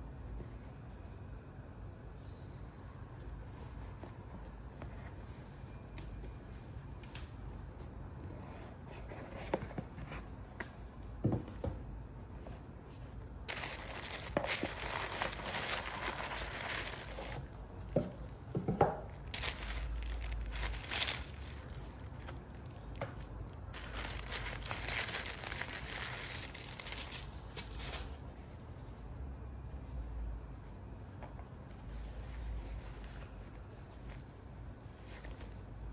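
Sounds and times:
paper crinkling and rustling: 0:13.4 - 0:28.3.

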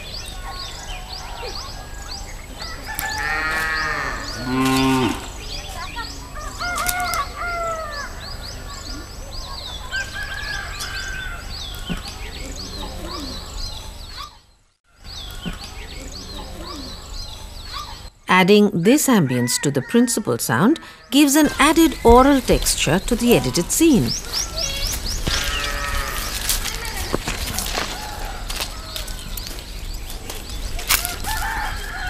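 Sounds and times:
birds chirping: 0:00.0 - 0:32.0
cow mooing: 0:03.1 - 0:05.3, 0:25.4 - 0:26.4
animal call: 0:23.3 - 0:29.1.

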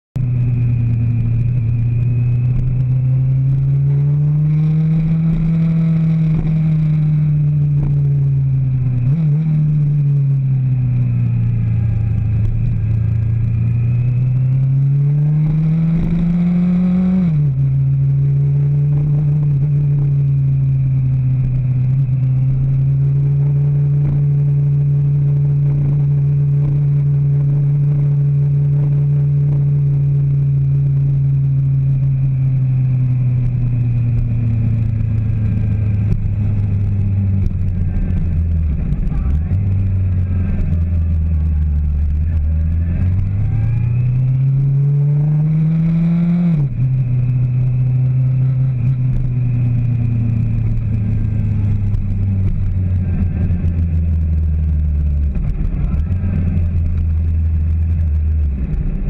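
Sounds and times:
vehicle engine revving: 0:00.2 - 0:59.0.

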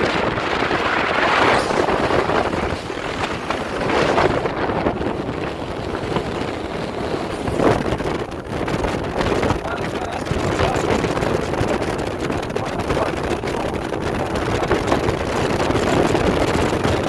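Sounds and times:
boat rushing across water: 0:00.0 - 0:17.0
outboard motor: 0:00.0 - 0:17.0
wind buffeting microphone: 0:00.0 - 0:17.0.

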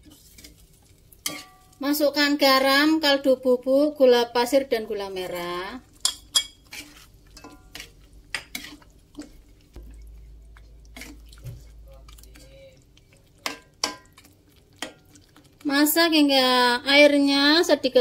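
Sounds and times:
metal spatula scraping a wok: 0:00.0 - 0:01.8, 0:05.3 - 0:09.5.

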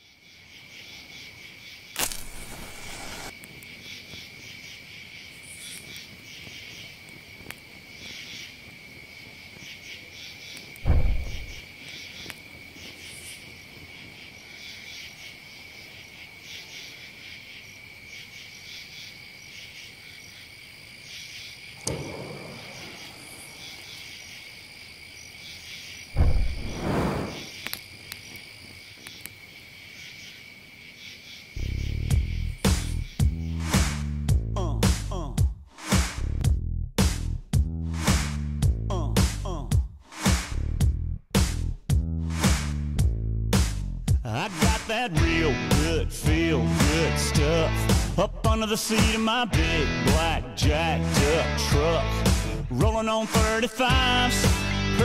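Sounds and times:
insects chirping: 0:00.0 - 0:35.5
dull thumps: 0:10.8 - 0:11.6, 0:26.2 - 0:27.0.

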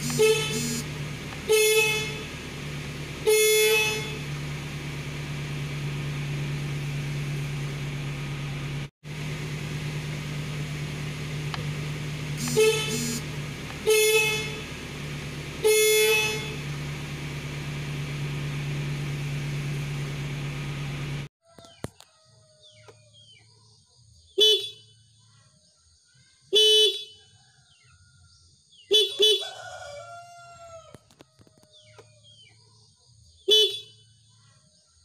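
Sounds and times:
car horn honks: 0:00.0 - 0:06.5, 0:11.2 - 0:19.8, 0:24.4 - 0:24.8, 0:33.5 - 0:34.0
steady low hum: 0:00.0 - 0:21.3.

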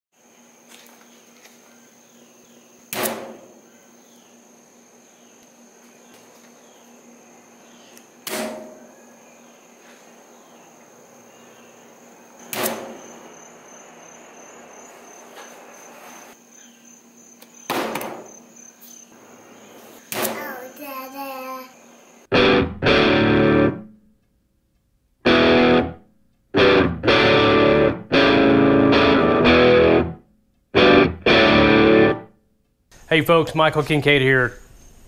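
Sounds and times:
insects chirring: 0:00.2 - 0:22.3, 0:32.9 - 0:35.0.

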